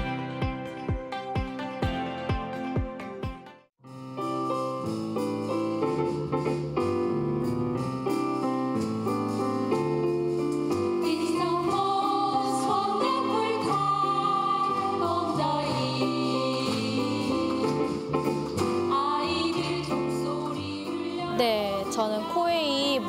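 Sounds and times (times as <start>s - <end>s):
piano accompaniment: 0.0s - 23.0s
women's choir singing: 11.0s - 21.4s.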